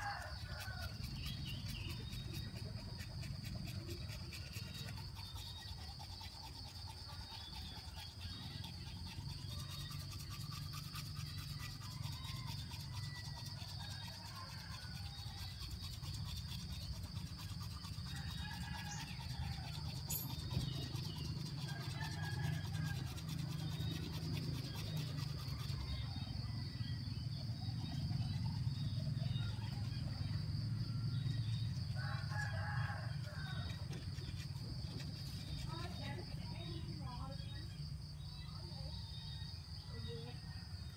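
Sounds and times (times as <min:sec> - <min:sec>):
toothbrush scrubbing teeth: 0:00.0 - 0:26.2.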